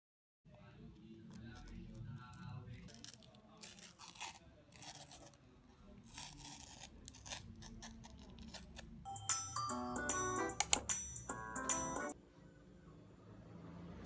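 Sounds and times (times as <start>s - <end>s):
paper wrapper rustling and tearing: 1.4s - 5.4s, 6.0s - 8.9s
music: 9.1s - 12.2s.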